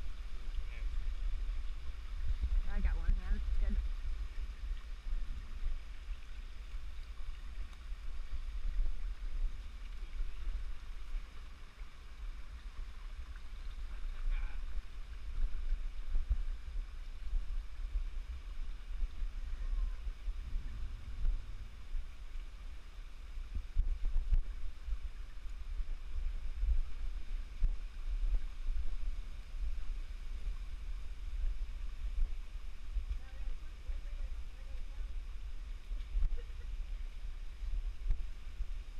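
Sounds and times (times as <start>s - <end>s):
running water hiss: 0.0s - 38.9s
wind buffeting microphone: 13.9s - 38.9s.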